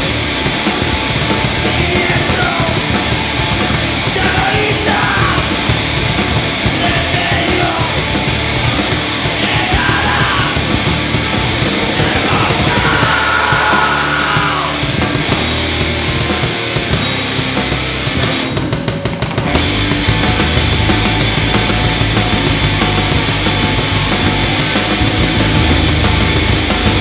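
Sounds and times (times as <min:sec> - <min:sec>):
bass guitar: 0:00.0 - 0:27.0
drum kit: 0:00.0 - 0:27.0
electric guitar: 0:00.0 - 0:27.0
shouted vocals: 0:04.1 - 0:05.5, 0:06.8 - 0:08.0, 0:09.3 - 0:10.8, 0:11.9 - 0:15.0.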